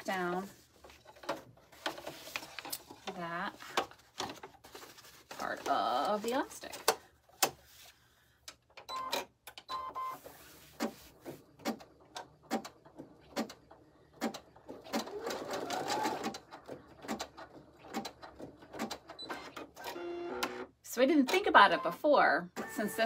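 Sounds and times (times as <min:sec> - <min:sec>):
embroidery machine beeping: 0:08.9 - 0:10.2.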